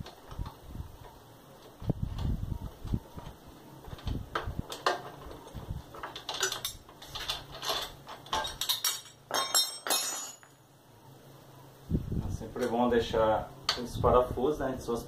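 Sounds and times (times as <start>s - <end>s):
metal wrench and bolts clinking: 6.0s - 10.6s.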